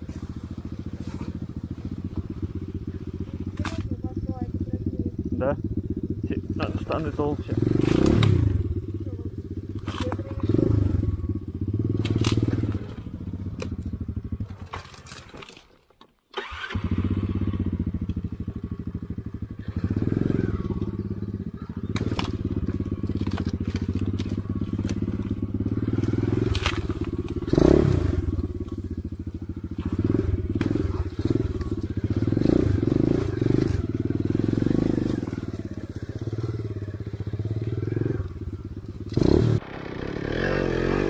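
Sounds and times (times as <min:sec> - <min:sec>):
motorcycle engine running: 0:00.0 - 0:15.4, 0:16.4 - 0:41.0
knocks and cracks: 0:26.0 - 0:27.4.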